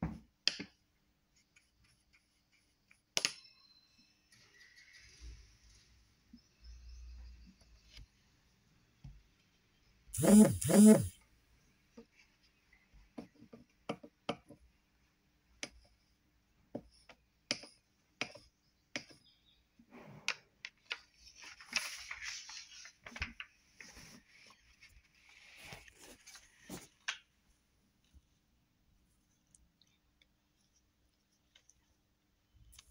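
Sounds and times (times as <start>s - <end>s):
soft paper rustling: 20.7s - 28.4s.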